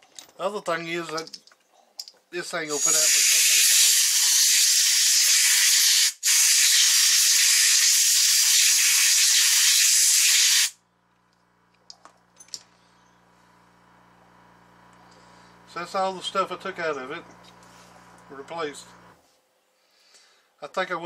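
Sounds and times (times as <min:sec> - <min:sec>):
air hissing from nozzle: 0:02.8 - 0:10.8.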